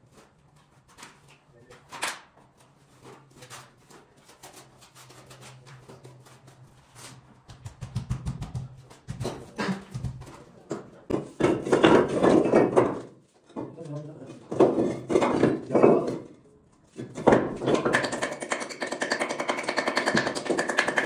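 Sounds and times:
trowel and stones knocking: 7.6s - 13.7s, 14.5s - 16.4s, 17.0s - 21.0s.

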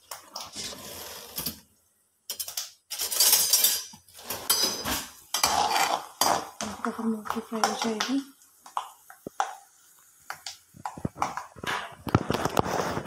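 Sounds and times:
peanuts frying in oil: 0.0s - 13.0s
metal spatula scraping a pan: 2.9s - 6.6s.

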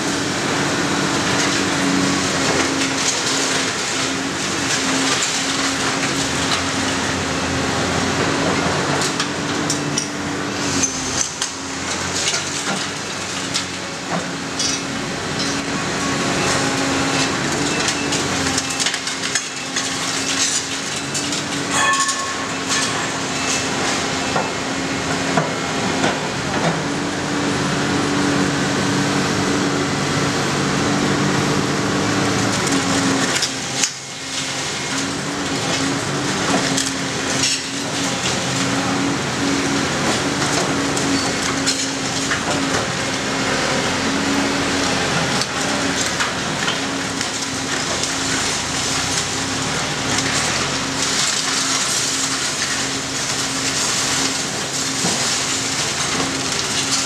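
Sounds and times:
diesel engine droning: 0.0s - 57.0s.

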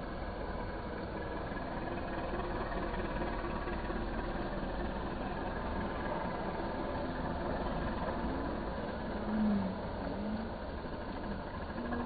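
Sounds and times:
tractor diesel engine: 0.0s - 12.0s.

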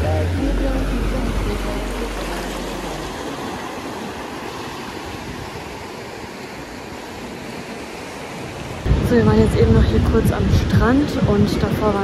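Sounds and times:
background music: 0.0s - 3.2s
ocean waves breaking on shore: 0.0s - 12.0s.

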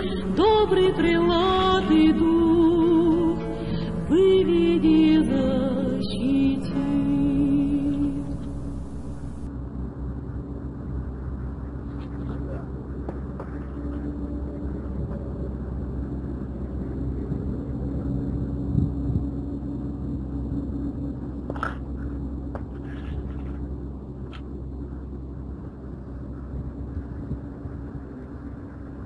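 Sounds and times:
faint hum: 0.0s - 29.0s
low outdoor rumble: 0.0s - 29.0s.

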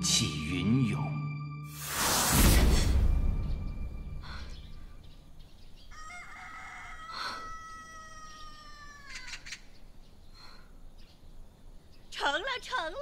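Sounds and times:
rooster crowing: 5.9s - 9.5s.

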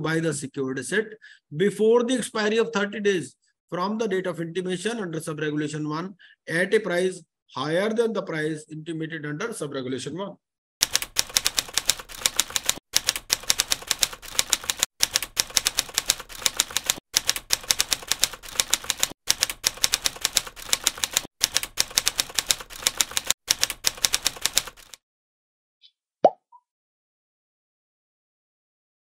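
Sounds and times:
rapid keyboard typing clicks: 10.8s - 25.0s.

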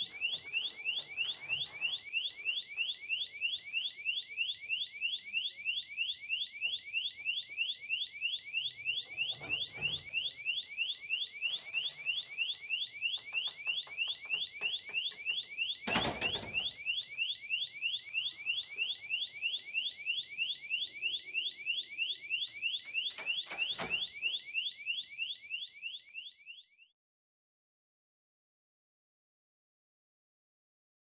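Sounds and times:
door alarm rising tone: 0.0s - 26.9s
door shutting with thud: 15.8s - 16.7s.

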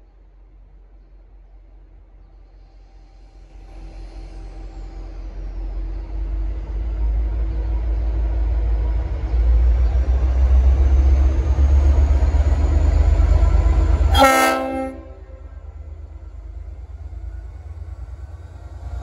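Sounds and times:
diesel locomotive rumbling: 0.0s - 19.0s
train air horn chord: 14.1s - 15.6s.

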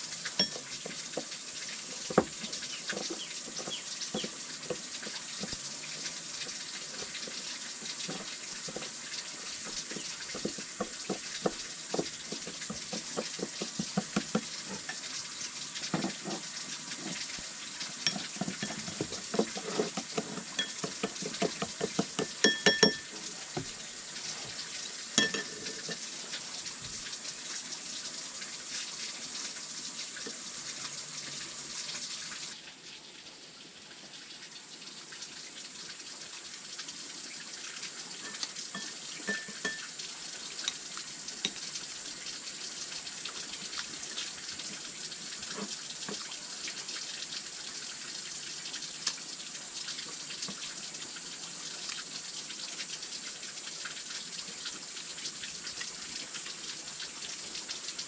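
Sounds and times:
food sizzling in frying pan: 0.0s - 32.6s, 37.8s - 51.2s
utensil stirring and scraping: 0.2s - 15.0s, 15.8s - 23.7s, 25.2s - 26.0s, 38.2s - 39.8s, 45.4s - 46.2s
metallic clinks on pan: 20.6s - 21.0s, 22.2s - 23.2s, 25.2s - 26.0s, 38.2s - 39.9s.

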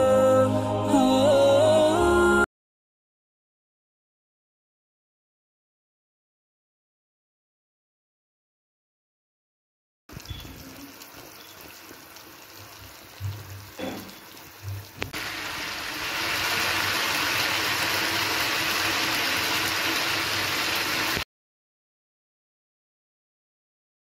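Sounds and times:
chicken sizzling in oil: 10.1s - 21.3s.

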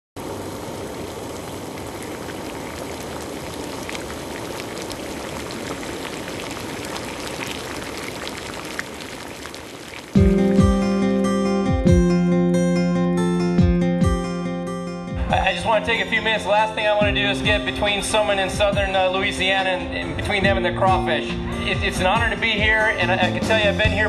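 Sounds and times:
water boiling in a pot: 0.2s - 10.2s
strummed acoustic guitar: 10.2s - 24.0s.

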